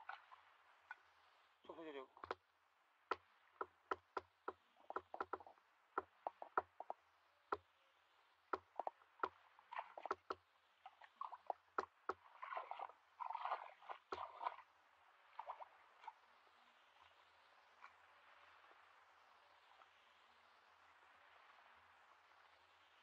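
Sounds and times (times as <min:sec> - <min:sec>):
water sloshing: 0:03.6 - 0:07.0, 0:08.6 - 0:14.7
splashing in muddy water: 0:08.6 - 0:16.2.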